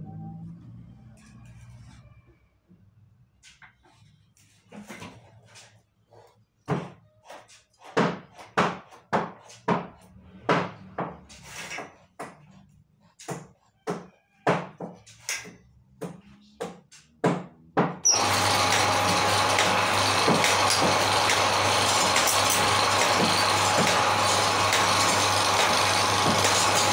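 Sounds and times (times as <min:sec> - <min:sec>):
knocks and clanks of hand work: 0:06.6 - 0:26.9
machine motor humming: 0:18.1 - 0:26.9.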